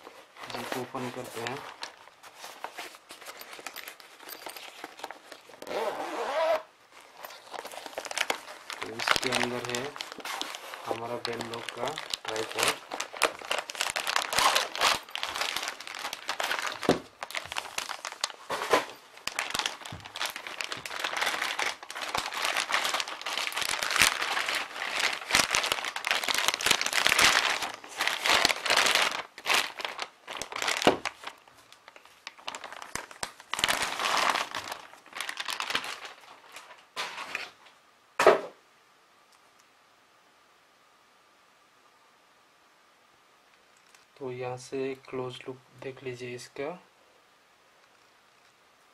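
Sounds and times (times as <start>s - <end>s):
plastic wrapping crinkling: 0.0s - 37.6s, 43.7s - 44.2s.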